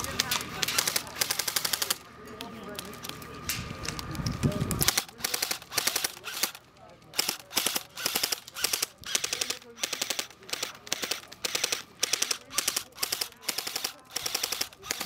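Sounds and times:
airsoft rifle firing bursts: 4.9 - 6.6, 7.2 - 15.0.

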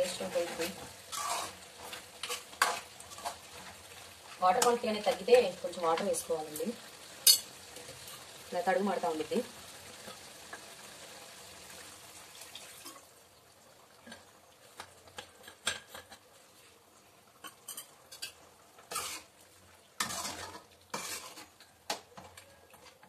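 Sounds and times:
ladle scraping a pan: 0.1 - 3.6, 17.4 - 19.3, 20.0 - 21.6.

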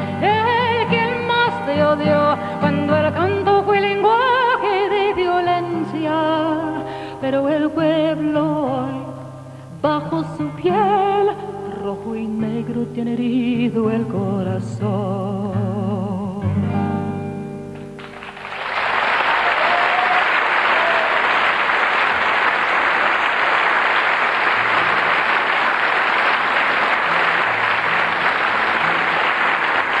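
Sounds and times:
acoustic guitar chord ringing: 15.3 - 18.1
audience applause: 17.8 - 30.0.

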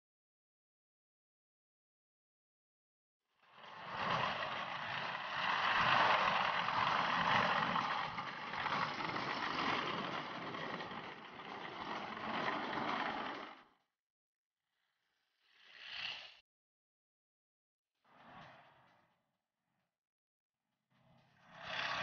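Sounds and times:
tracked vehicle driving through snow: 3.6 - 13.6.

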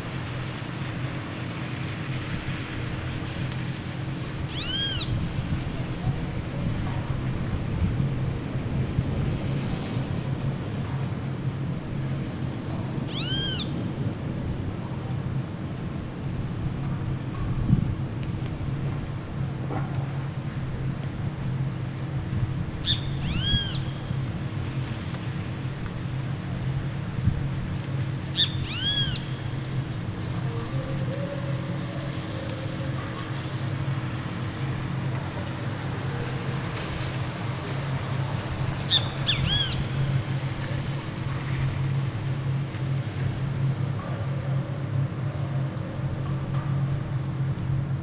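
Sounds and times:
low city hum: 0.0 - 48.0
bird calling: 4.5 - 5.2, 13.1 - 13.8, 22.8 - 24.0, 28.4 - 29.5, 30.4 - 33.3, 38.9 - 39.9.

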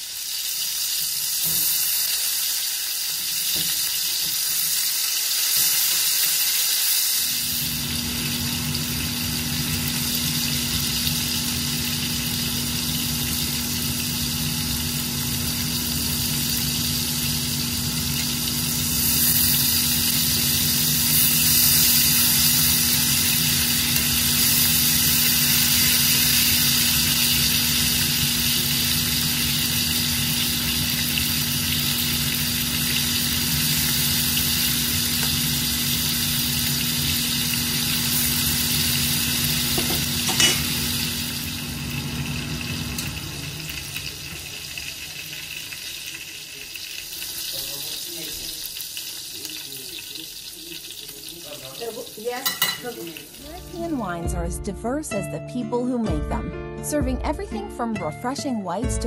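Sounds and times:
steaks sizzling in a frying pan: 0.0 - 54.2
low machine hum: 7.3 - 45.2.

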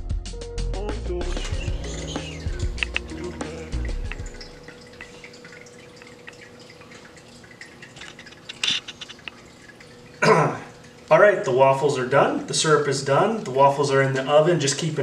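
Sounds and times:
faint steady hum: 1.1 - 15.0
small clicks: 2.7 - 3.2.

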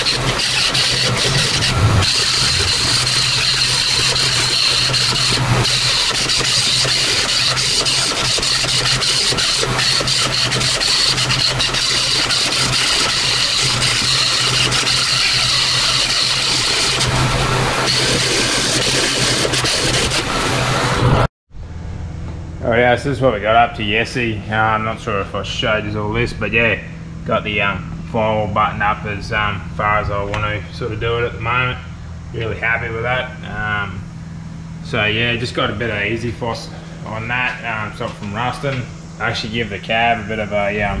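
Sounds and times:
pneumatic grinder whining: 0.0 - 21.3.

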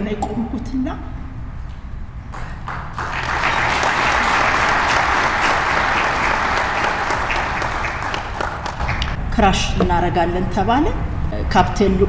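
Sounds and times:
audience applauding: 2.3 - 9.2.

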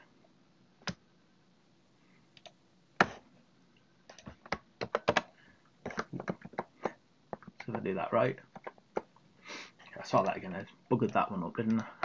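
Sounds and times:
mouse clicks: 2.4 - 3.2
keyboard key taps: 4.1 - 5.3.

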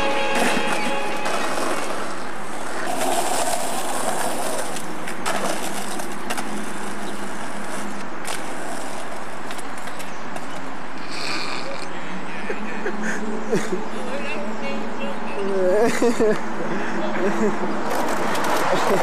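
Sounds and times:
skateboard clacking on pavement: 0.0 - 11.3, 17.9 - 19.0
skateboard wheels rolling: 0.0 - 11.9, 17.2 - 19.0.

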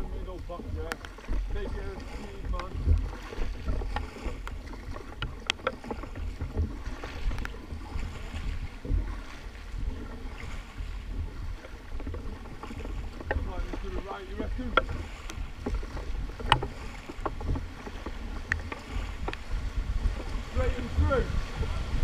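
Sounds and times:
kayak paddles splashing in water: 0.0 - 22.0
wind rumble on microphone: 0.0 - 22.0.

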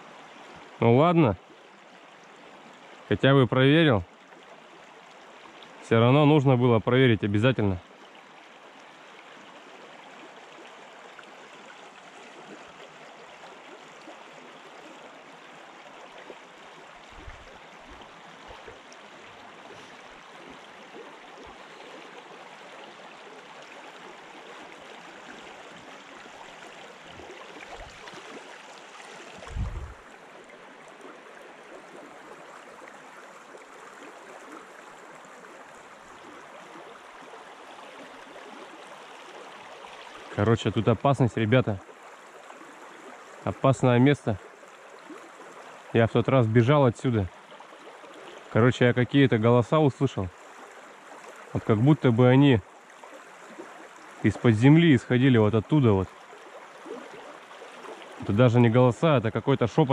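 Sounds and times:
flowing river water: 0.0 - 59.9
dull low thumps: 29.4 - 30.0.

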